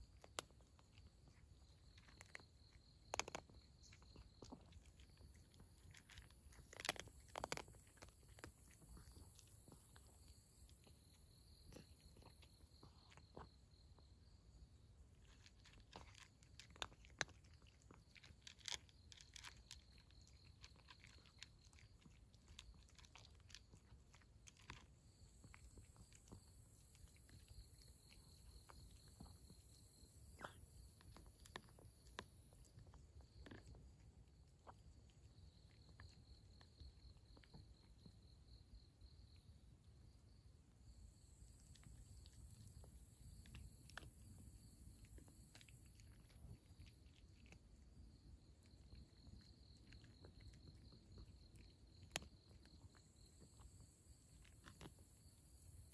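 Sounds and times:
cat crunching dry kibble: 0.0 - 38.4, 41.2 - 55.9.

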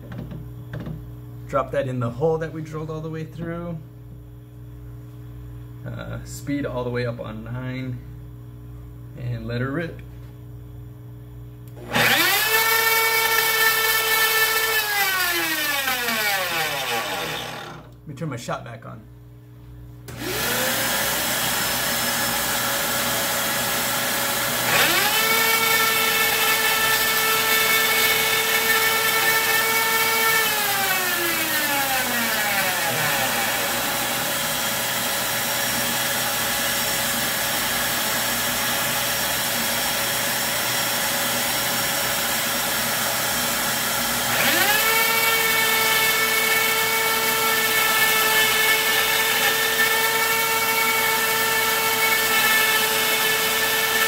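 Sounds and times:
router motor whine: 11.8 - 17.9, 20.1 - 54.0.

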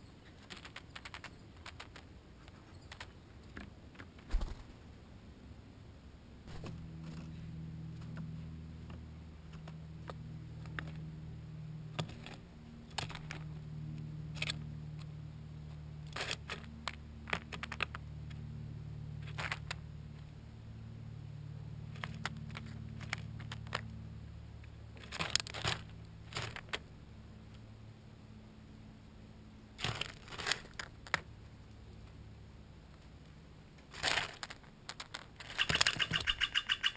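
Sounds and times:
low steady hum: 0.0 - 36.9
bird tapping on peanut shells: 0.3 - 2.1, 16.3 - 18.0, 22.0 - 23.9, 34.0 - 36.9.

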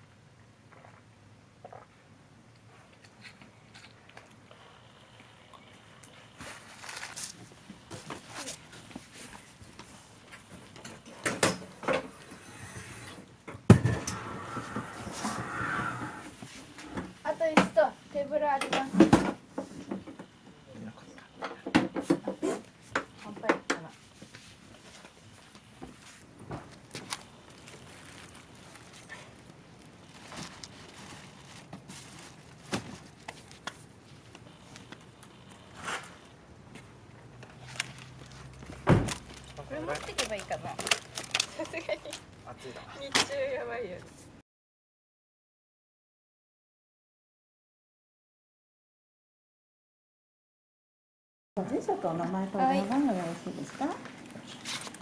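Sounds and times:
camping gear rustling: 6.2 - 11.2, 22.3 - 43.1, 52.6 - 55.0.

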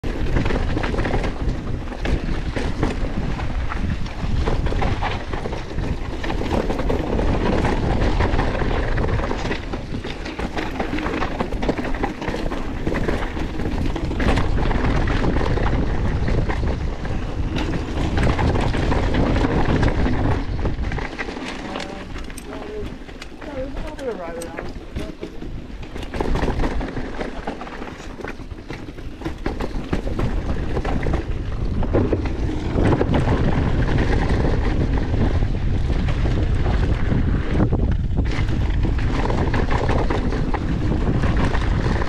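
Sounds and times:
bike rattling and knocking: 0.0 - 42.0
wind buffeting microphone: 0.0 - 42.0.

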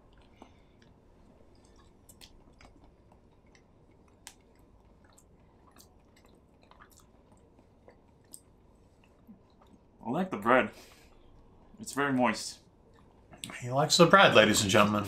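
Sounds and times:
faint chewing: 0.0 - 10.0, 10.8 - 11.8, 12.7 - 13.6.

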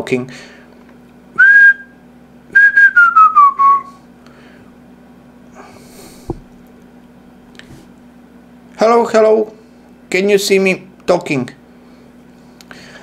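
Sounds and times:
person whistling: 1.4 - 2.0, 2.6 - 4.0.

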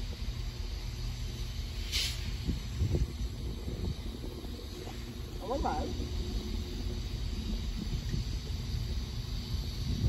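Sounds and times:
diesel train rumble: 0.0 - 10.0
wind buffeting microphone: 2.2 - 10.0.

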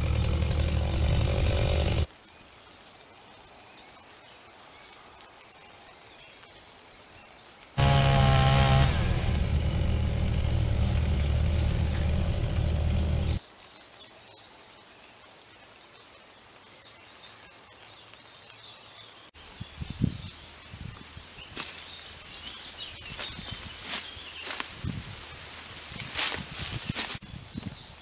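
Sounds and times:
birds chirping: 0.0 - 2.1, 7.8 - 13.4, 18.0 - 24.7
chainsaw running: 0.0 - 2.1, 7.8 - 13.4.

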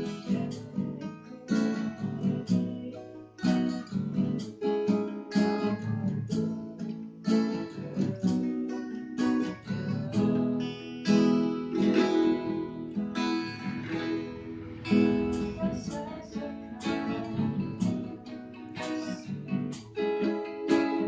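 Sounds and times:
acoustic guitars strumming: 0.0 - 21.0
bass guitar: 11.7 - 20.0.

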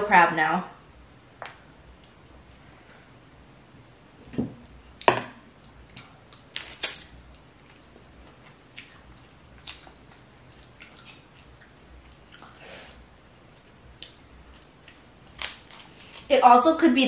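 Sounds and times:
crab shells cracking: 6.4 - 7.1, 15.3 - 16.2.

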